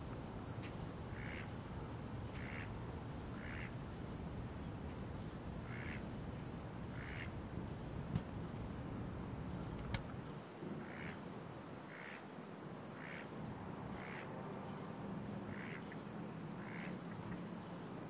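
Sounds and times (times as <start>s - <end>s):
high insect hum: 0.0s - 18.0s
duck quacking softly: 1.1s - 1.5s, 2.4s - 2.7s, 3.4s - 3.8s, 6.9s - 7.3s, 10.8s - 11.2s, 13.0s - 13.3s, 15.5s - 15.8s.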